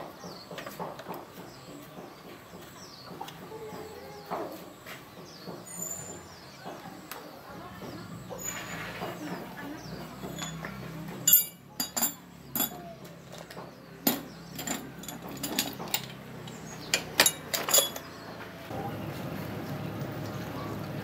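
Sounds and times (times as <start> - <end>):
metal tools clattering on concrete: 10.2 - 18.2.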